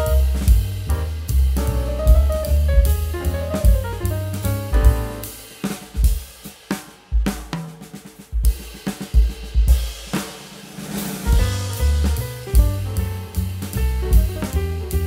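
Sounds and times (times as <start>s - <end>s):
drum-led background music: 0.0s - 15.0s.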